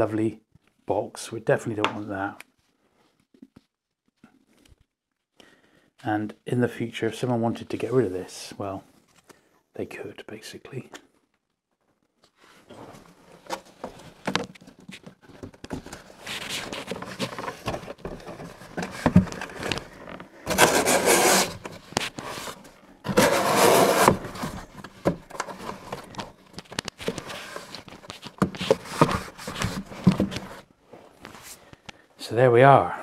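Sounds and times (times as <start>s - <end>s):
hands rubbing paper tape: 20.5s - 24.3s.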